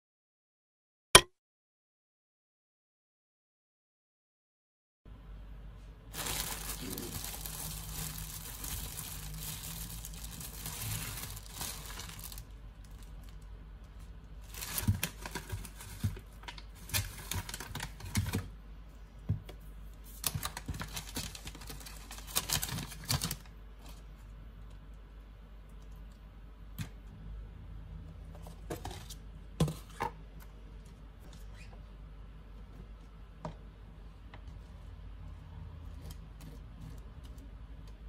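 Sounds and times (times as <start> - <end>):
plastic bag rustling: 6.1 - 13.5, 14.4 - 18.4, 20.1 - 24.1.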